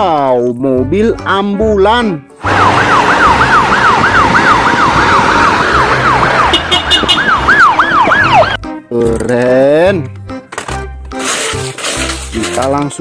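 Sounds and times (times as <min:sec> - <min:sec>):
road noise: 0:02.3 - 0:08.6
ambulance siren wailing: 0:02.4 - 0:08.6.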